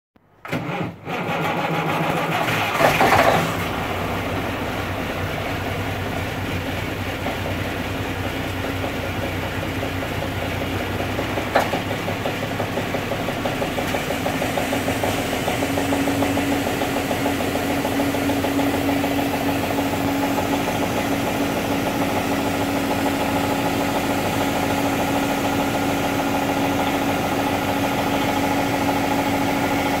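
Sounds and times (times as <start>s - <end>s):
diesel engine starting and idling: 0.2s - 30.0s.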